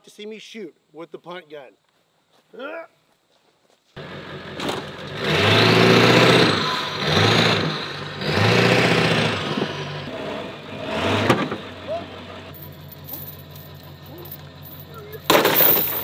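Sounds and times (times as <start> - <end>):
engine running: 4.0 - 16.0.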